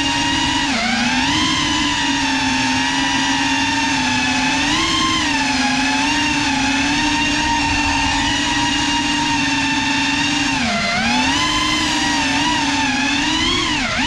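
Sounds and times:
quadcopter motors whining: 0.0s - 14.0s.

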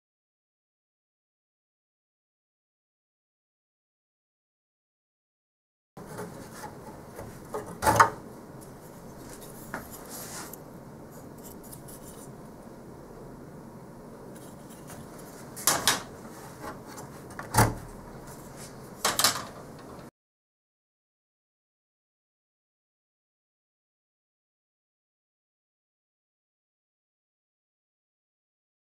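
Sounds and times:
low steady hiss: 6.0s - 20.1s.

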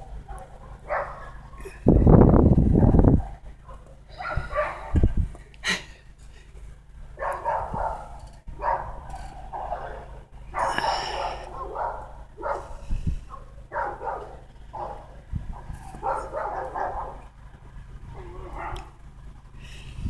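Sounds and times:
dogs snarling and barking: 0.0s - 1.8s, 2.8s - 5.1s, 7.2s - 17.3s, 18.1s - 19.1s.

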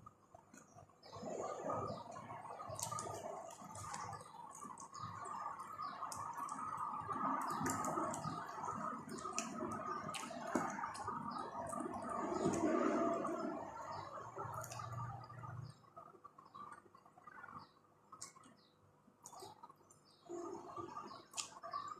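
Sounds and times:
chewing fried chicken: 1.9s - 15.6s.

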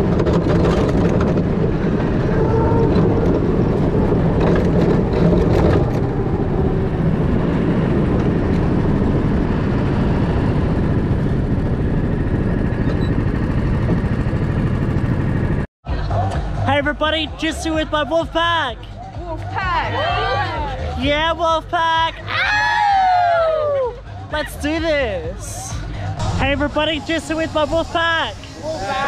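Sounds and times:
wind noise on microphone: 0.0s - 15.6s
go-kart engine running: 0.0s - 16.3s.

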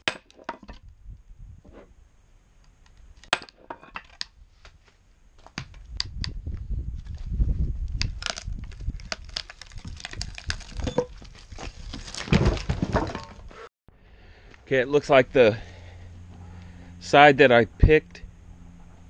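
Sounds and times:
knocks and scraping of wood: 0.0s - 0.9s, 3.2s - 6.2s, 8.0s - 13.7s
wood cracking and creaking: 7.9s - 13.6s.

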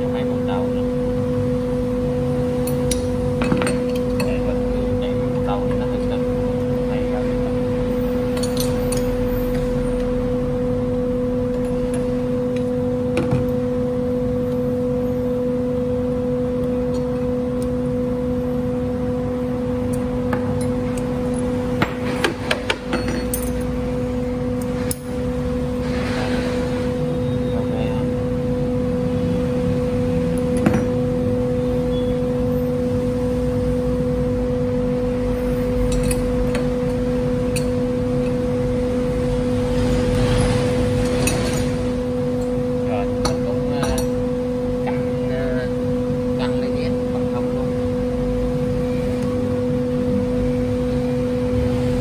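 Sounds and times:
loud machine hum: 0.0s - 52.0s
metal wrenches clinking: 8.3s - 9.2s, 22.7s - 23.8s.

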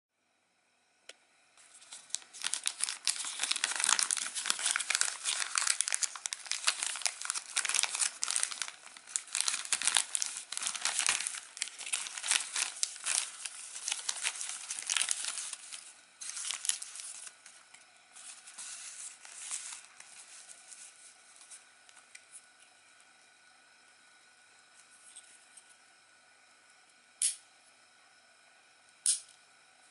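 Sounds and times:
plastic bag crinkling: 1.6s - 21.6s.

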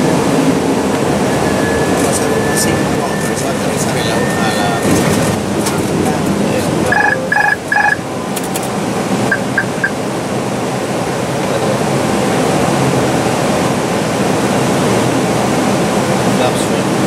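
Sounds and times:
airflow and engine noise: 0.0s - 17.0s
electronic tone pulses: 6.9s - 8.0s, 9.3s - 10.0s
short beeps: 6.9s - 8.0s, 9.3s - 10.0s.

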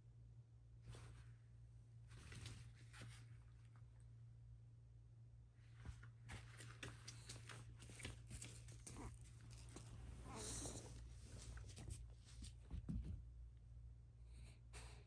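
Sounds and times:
dog paws clicking on floor: 6.0s - 10.6s.

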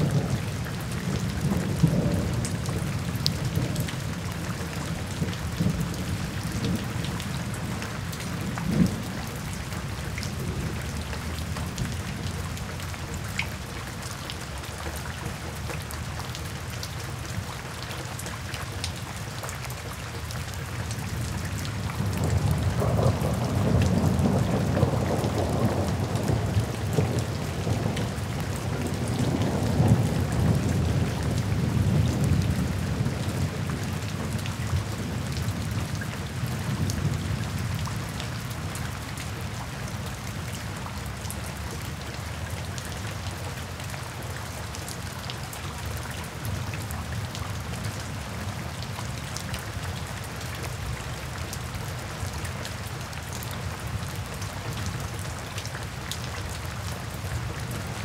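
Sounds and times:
steady rain falling: 0.0s - 58.0s
thunder rumbling: 21.9s - 34.3s.

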